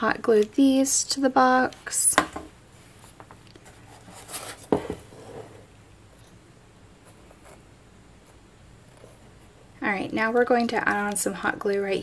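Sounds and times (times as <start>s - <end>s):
ornament balls handling noise: 1.7s - 5.2s.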